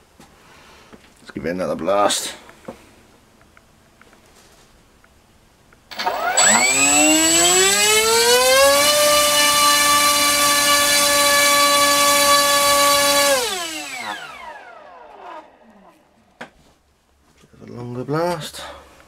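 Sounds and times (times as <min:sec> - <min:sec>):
electric motor propeller whine: 0:05.9 - 0:16.1.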